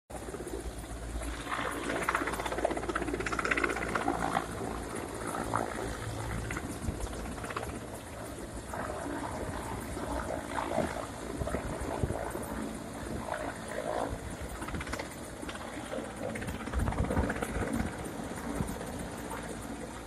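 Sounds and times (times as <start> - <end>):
helicopter rotors and engines: 0.1 - 20.0.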